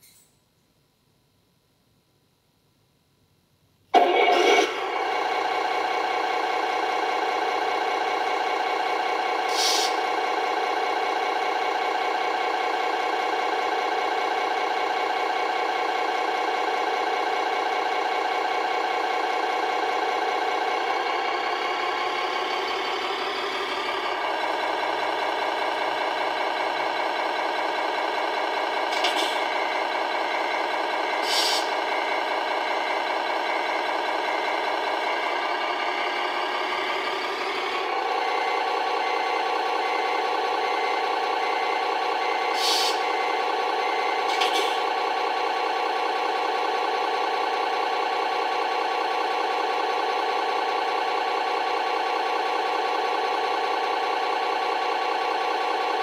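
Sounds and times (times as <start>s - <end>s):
simulated diesel engine idling: 4.0s - 56.0s
air brake hisses: 9.5s - 10.0s, 31.2s - 31.8s, 42.5s - 43.0s.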